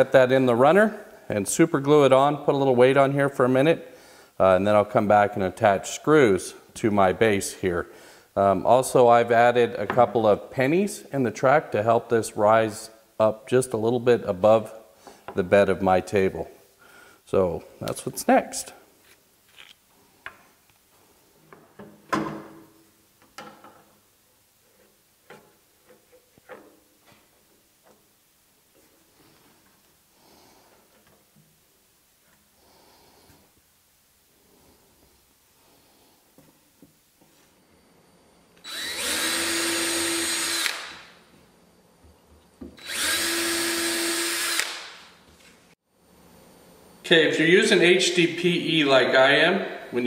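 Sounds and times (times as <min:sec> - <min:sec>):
cordless drill driving screws: 0:38.6 - 0:41.1, 0:42.8 - 0:45.0.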